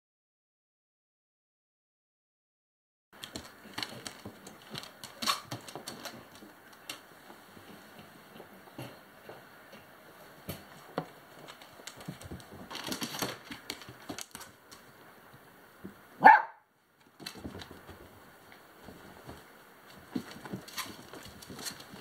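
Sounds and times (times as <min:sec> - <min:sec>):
puppies scuffling and rustling: 0:03.2 - 0:16.0, 0:17.0 - 0:22.0
dog yelping: 0:16.2 - 0:16.6.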